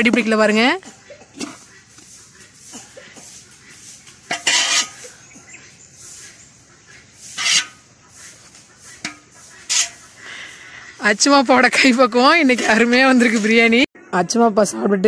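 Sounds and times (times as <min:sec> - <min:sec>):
metal spoon scraping pot: 0:00.0 - 0:05.4, 0:07.2 - 0:10.2, 0:11.1 - 0:13.8
rice shuffling: 0:00.0 - 0:13.7.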